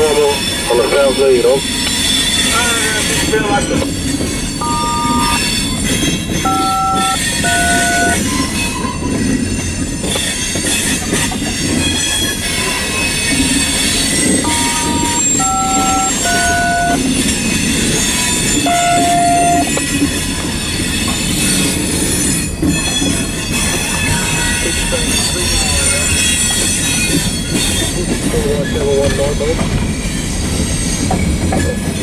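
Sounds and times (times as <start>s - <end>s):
radio touch-tone beeps: 4.6s - 5.4s, 6.5s - 8.2s, 14.5s - 17.0s, 18.7s - 19.8s.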